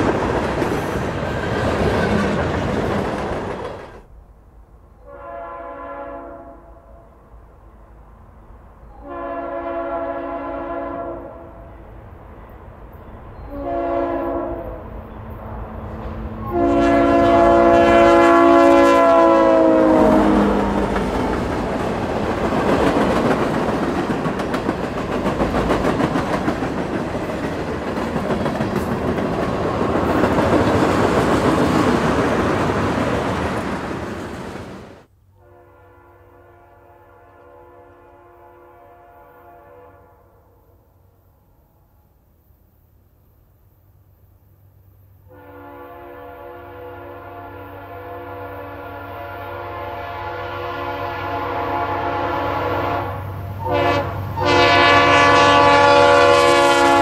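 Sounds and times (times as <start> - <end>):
locomotive air horn: 5.0 - 7.1, 9.0 - 11.7, 13.5 - 14.9, 16.3 - 21.4, 35.4 - 40.7, 45.3 - 57.0
faint locomotive horn: 5.0 - 7.7, 8.8 - 12.0, 12.9 - 21.8, 35.3 - 42.1, 45.1 - 57.0.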